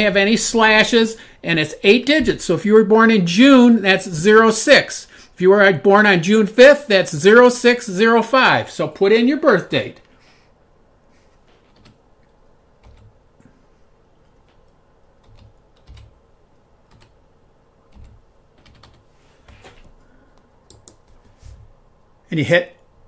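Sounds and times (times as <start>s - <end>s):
keyboard keys tapping: 12.8s - 13.1s, 14.3s - 16.1s, 17.9s - 19.8s.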